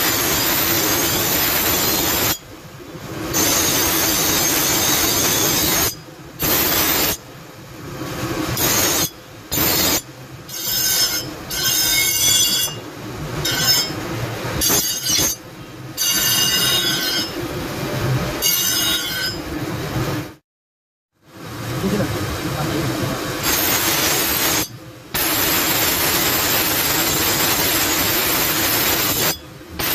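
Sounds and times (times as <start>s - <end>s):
bench grinder grinding steel: 0.0s - 2.4s, 3.3s - 7.2s, 8.5s - 12.8s, 13.4s - 15.4s, 16.0s - 17.4s, 18.3s - 19.5s, 23.4s - 29.9s
high screeching ring: 0.0s - 2.5s, 3.3s - 7.2s, 8.6s - 12.8s, 13.4s - 14.0s, 14.6s - 15.4s, 16.0s - 17.4s, 18.4s - 19.5s, 23.4s - 29.9s.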